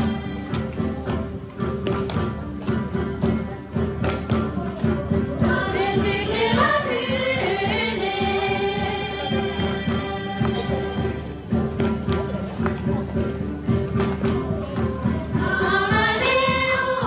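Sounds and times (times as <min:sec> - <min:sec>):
group of voices singing: 0:00.0 - 0:01.2, 0:05.4 - 0:12.0, 0:14.9 - 0:17.0
folk dance music with drone: 0:00.0 - 0:17.0.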